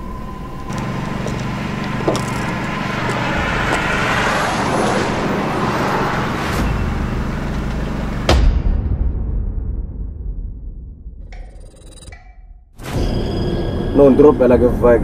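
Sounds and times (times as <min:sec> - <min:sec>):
motor vehicle engine running: 0:00.0 - 0:08.4.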